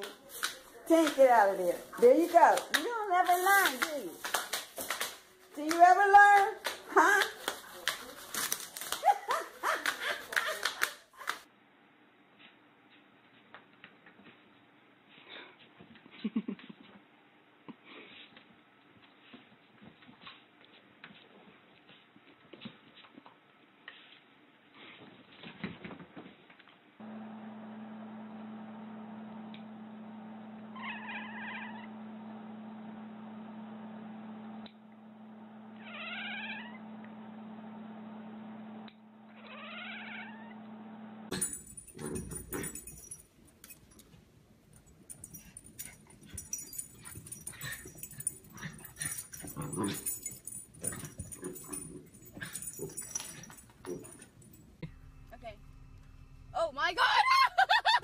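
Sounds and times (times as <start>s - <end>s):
steady low hum: 40.4s - 58.0s.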